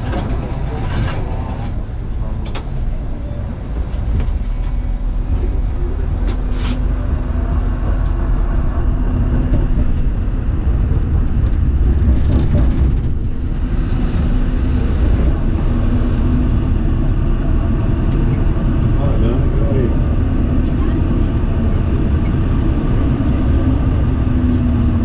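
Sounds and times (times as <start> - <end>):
tram wheels rumbling on rails: 0.0 - 25.0.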